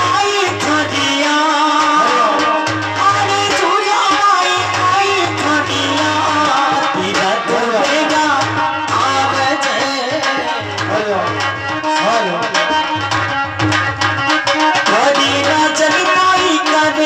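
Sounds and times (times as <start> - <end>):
hand drum rhythm: 0.0 - 17.0
instrumental folk melody: 5.3 - 17.0.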